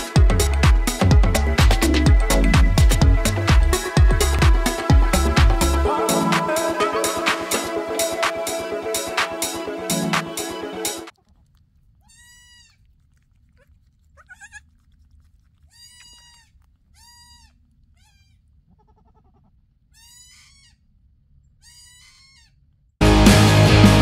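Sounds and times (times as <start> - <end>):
kid goat bleating: 12.0 - 12.9, 13.6 - 14.8, 15.6 - 20.9, 21.6 - 22.6.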